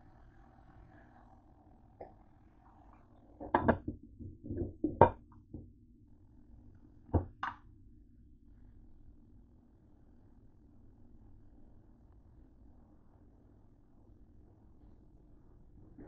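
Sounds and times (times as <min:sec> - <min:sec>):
low steady hum: 0:00.0 - 0:16.0
glass lid placed on pot: 0:03.4 - 0:03.9.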